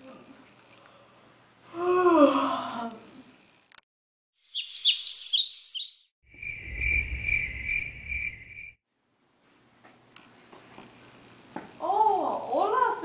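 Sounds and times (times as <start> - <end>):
crickets chirping: 4.4 - 8.8
high bird chirps: 4.4 - 8.8
low rumble: 6.4 - 8.6.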